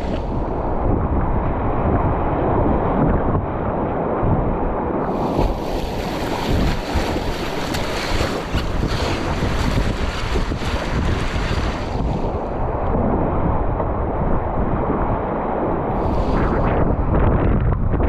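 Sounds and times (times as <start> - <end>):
wind noise on microphone: 0.0 - 18.0
whitewater rushing and splashing: 5.0 - 12.6.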